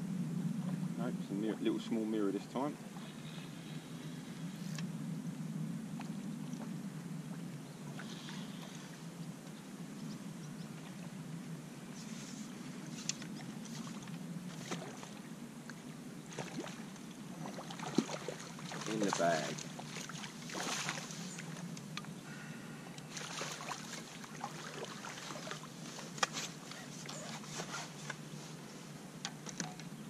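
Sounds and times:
low rumble: 0.0 - 11.9
light water splashes: 12.9 - 22.1, 23.0 - 28.2.

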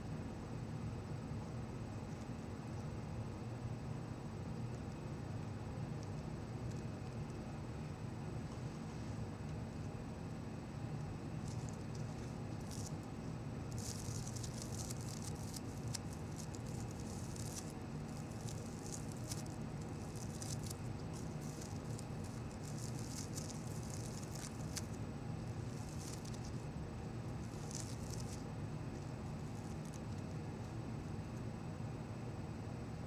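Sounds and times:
steady low hum: 0.0 - 33.0
crackling rustle of flower petals: 11.3 - 30.4.

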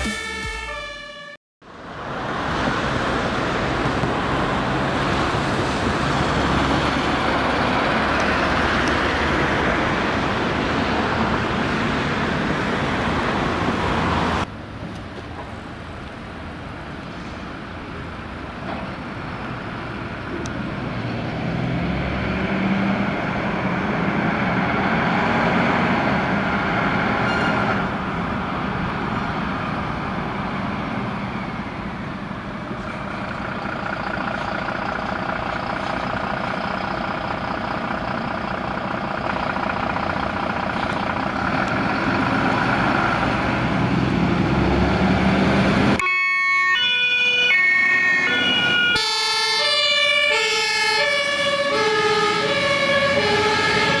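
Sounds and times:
two-tone siren: 0.0 - 1.4, 46.0 - 54.0
diesel engine droning: 0.0 - 14.5, 16.7 - 46.0, 47.5 - 54.0.

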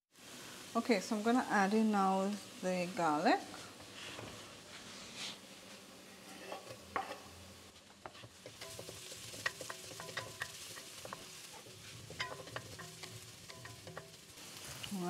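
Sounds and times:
onions sizzling in oil: 0.1 - 15.0
spoon knocking against pan: 8.2 - 11.3, 12.1 - 14.2.

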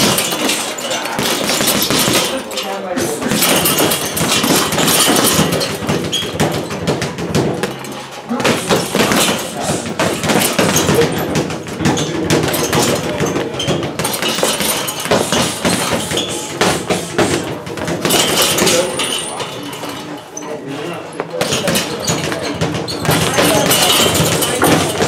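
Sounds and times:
gloves thudding on punching bag: 3.2 - 18.7.

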